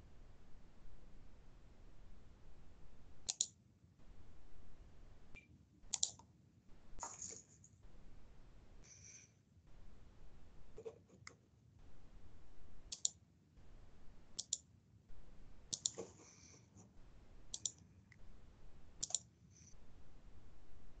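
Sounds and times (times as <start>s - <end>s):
computer mouse clicks: 3.2s - 3.6s, 5.9s - 6.3s, 12.9s - 13.2s, 14.4s - 14.6s, 15.7s - 16.1s, 17.5s - 17.9s, 19.0s - 19.3s.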